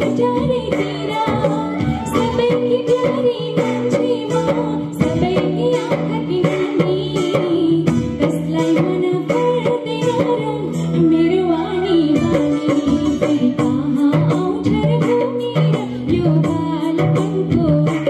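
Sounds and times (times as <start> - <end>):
amplified band music: 0.0 - 3.1
woman singing into microphone: 0.0 - 18.0.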